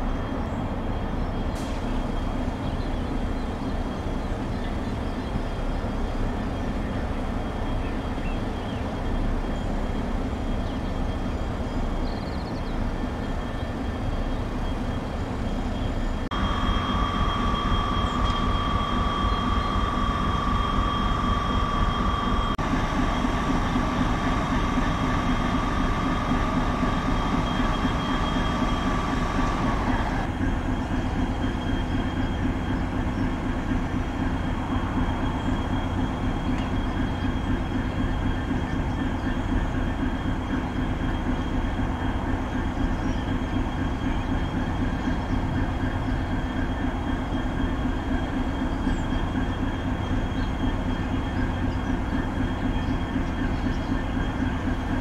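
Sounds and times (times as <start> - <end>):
engine hum with whine: 0.0 - 55.0
loud steady tone: 12.7 - 55.0.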